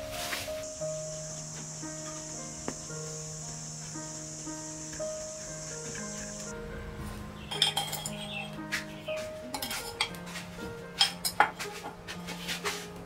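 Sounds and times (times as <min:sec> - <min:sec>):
soft music: 0:00.0 - 0:13.0
metal spoon clinking on pottery: 0:07.5 - 0:08.5, 0:09.5 - 0:10.2.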